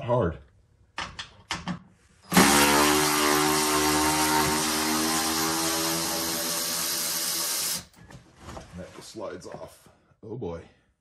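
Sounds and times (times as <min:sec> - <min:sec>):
impact wrench running: 0:02.3 - 0:07.9.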